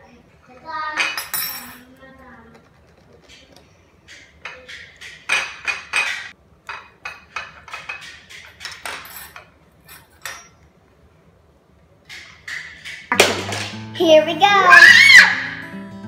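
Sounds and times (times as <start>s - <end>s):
cutlery clinking on a plate: 1.0s - 1.8s, 2.8s - 10.7s, 12.1s - 13.8s.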